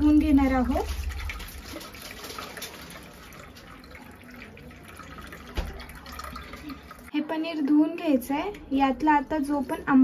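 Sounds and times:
water pouring in thin stream: 0.0s - 7.1s.

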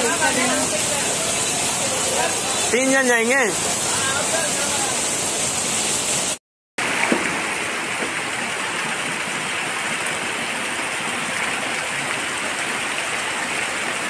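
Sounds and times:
heavy rain splashing on water: 0.0s - 14.0s.

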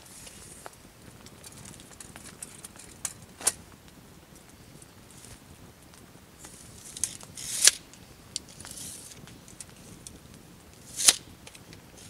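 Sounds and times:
tape measure scraping rustle: 0.0s - 3.6s, 6.4s - 10.1s, 10.8s - 12.0s
tape measure snapping shut: 6.9s - 7.8s, 10.9s - 11.2s
tape measure click: 7.0s - 7.8s, 10.9s - 11.2s.

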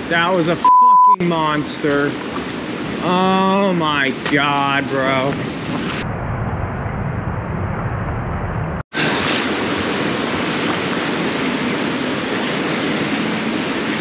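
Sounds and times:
surf churning around pilings: 0.0s - 6.0s, 8.9s - 14.0s
wind on microphone: 4.2s - 14.0s.

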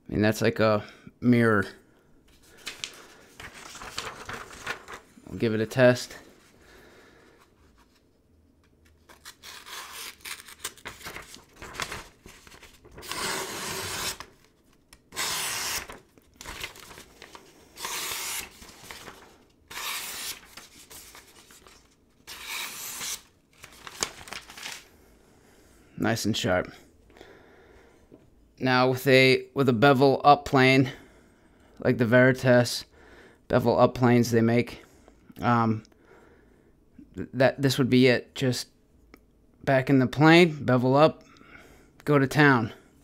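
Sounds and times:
paper rustling: 2.3s - 5.2s, 7.3s - 24.9s
blade slicing paper: 9.1s - 24.8s.

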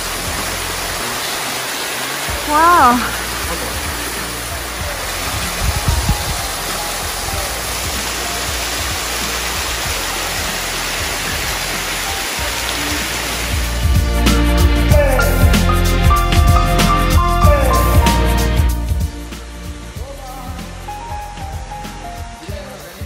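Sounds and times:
waterfall splashing into pool: 0.0s - 14.0s.

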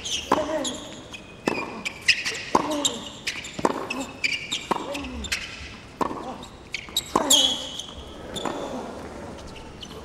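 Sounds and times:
sneakers squeaking on court: 0.0s - 10.0s
rackets striking tennis ball: 0.2s - 7.7s
ball bouncing: 3.6s - 4.0s, 6.0s - 6.3s.

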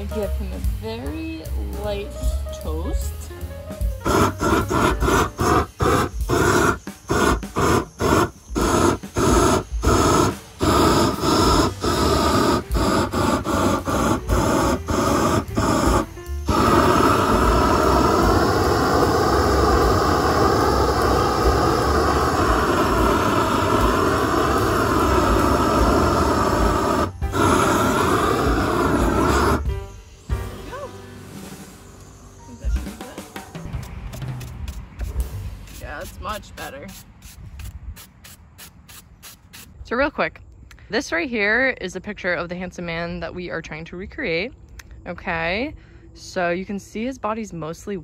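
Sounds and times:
propane torch burning: 3.8s - 29.9s.

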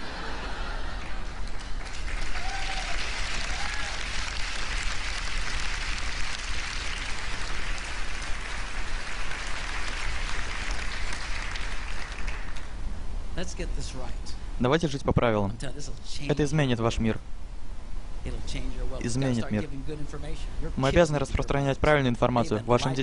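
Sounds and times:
audience applauding: 0.0s - 12.7s.

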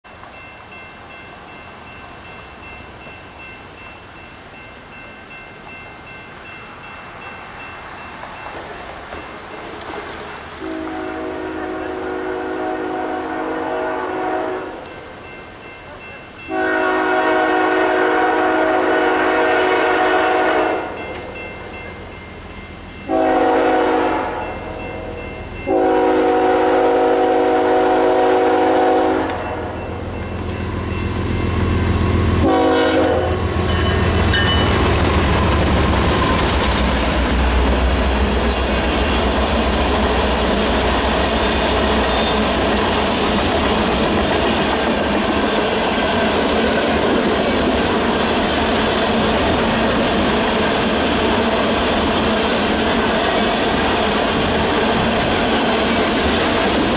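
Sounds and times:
train wheels clickety-clack: 7.5s - 11.7s, 33.2s - 56.9s
locomotive air horn blasts: 10.6s - 14.8s, 16.5s - 21.0s, 23.1s - 24.5s, 25.7s - 29.4s, 32.4s - 33.7s.

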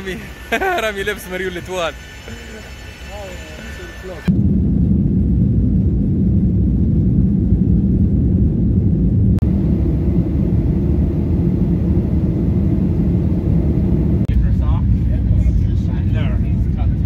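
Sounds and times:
deep jet engine rumble: 0.0s - 17.0s.

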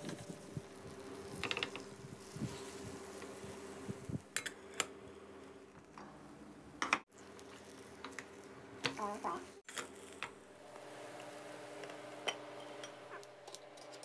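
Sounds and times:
batter scraping in pan: 0.0s - 4.1s, 7.1s - 13.0s.

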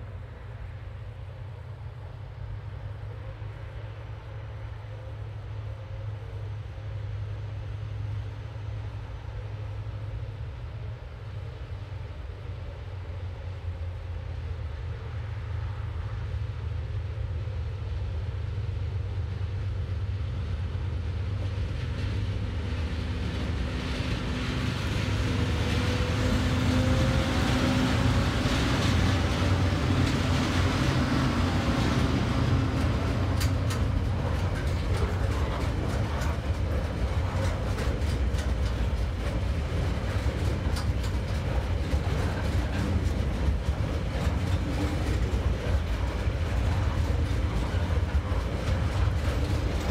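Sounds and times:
diesel locomotive engine drone: 0.0s - 49.9s
train wagons rumbling: 18.6s - 49.9s
wheels clicking on rails: 21.4s - 49.9s.

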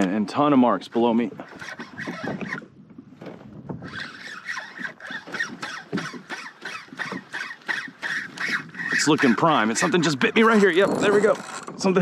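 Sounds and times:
fishing reel clicking: 1.4s - 2.6s, 3.8s - 11.8s.

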